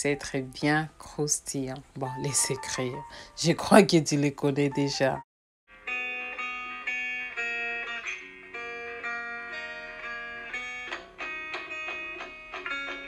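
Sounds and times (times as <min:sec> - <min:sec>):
plucked guitar melody: 0:01.7 - 0:03.3, 0:05.8 - 0:13.0.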